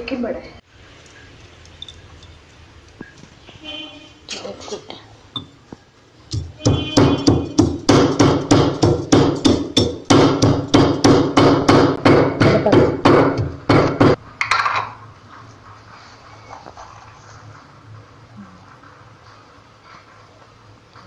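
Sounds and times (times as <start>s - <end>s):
pestle pounding in stone mortar: 6.3s - 14.2s.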